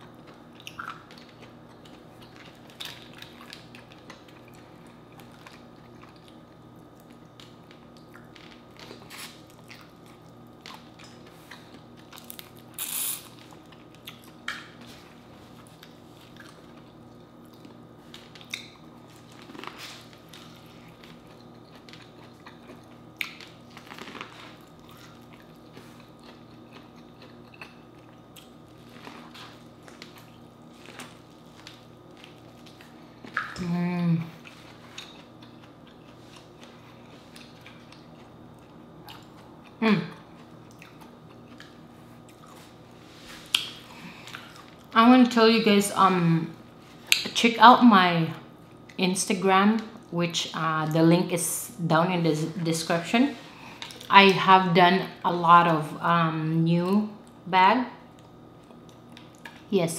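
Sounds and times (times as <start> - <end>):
person chewing and biting: 0.0 - 33.7, 34.4 - 42.8
low steady hum: 0.0 - 59.9.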